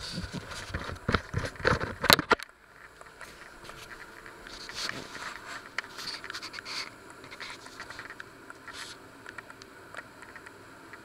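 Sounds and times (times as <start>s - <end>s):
scratchy handling noises: 0.0s - 9.5s
small clicks: 7.1s - 11.0s.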